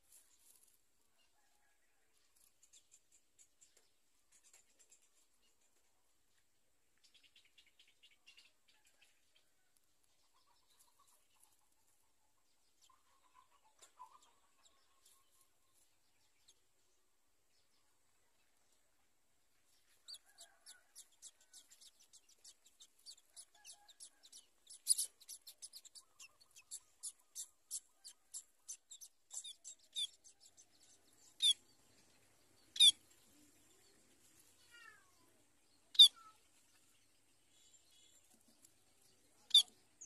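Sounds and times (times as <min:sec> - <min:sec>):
finches peeping: 0:20.1 - 0:33.9, 0:35.9 - 0:36.4, 0:39.4 - 0:39.8
sharp finch calls: 0:21.2 - 0:30.2, 0:31.3 - 0:31.6, 0:32.7 - 0:33.0, 0:35.9 - 0:36.2, 0:39.4 - 0:39.7.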